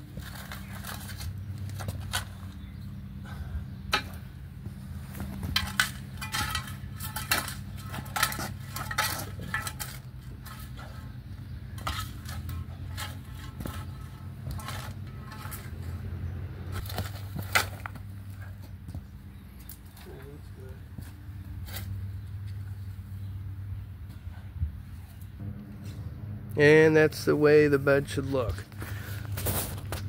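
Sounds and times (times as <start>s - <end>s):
metal scraper scraping concrete: 5.1s - 16.1s.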